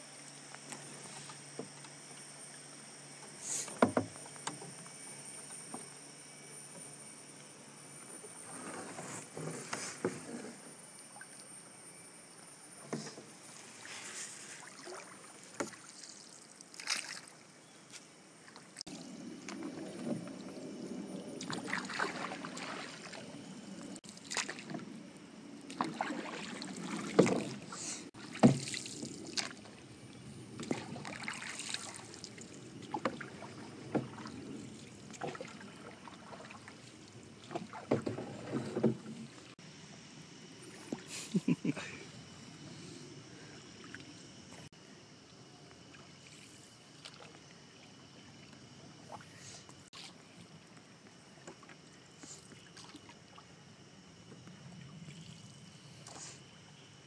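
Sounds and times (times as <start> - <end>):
paddle knocks: 3.7 - 4.6, 28.3 - 28.8
paddle splashing in water: 13.7 - 17.4, 21.4 - 23.4, 24.1 - 24.8, 25.7 - 29.8, 30.6 - 39.4.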